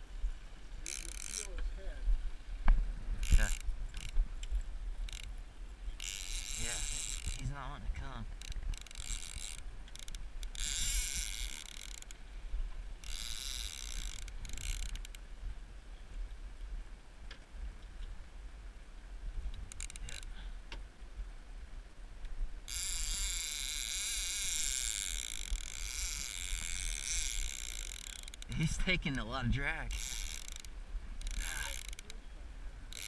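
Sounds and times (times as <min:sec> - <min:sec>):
fishing reel drag buzzing: 0:00.8 - 0:01.6, 0:03.2 - 0:07.7, 0:08.4 - 0:12.2, 0:13.0 - 0:15.2, 0:19.7 - 0:20.4, 0:22.6 - 0:29.0, 0:29.8 - 0:32.2.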